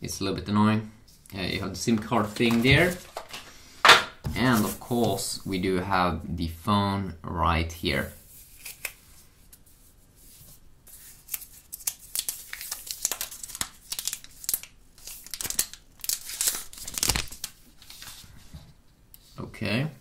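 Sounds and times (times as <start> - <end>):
plastic film crinkling: 2.0 - 3.4, 11.2 - 18.3.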